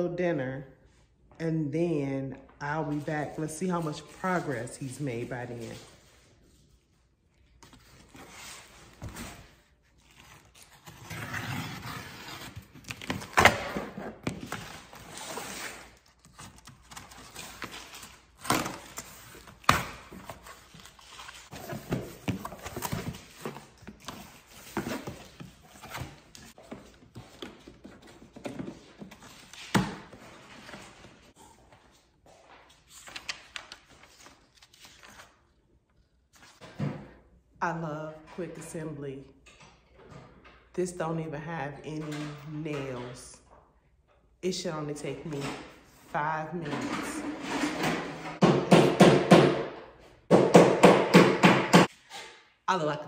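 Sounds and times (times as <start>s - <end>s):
boxes knocking and thunking: 46.6s - 51.9s.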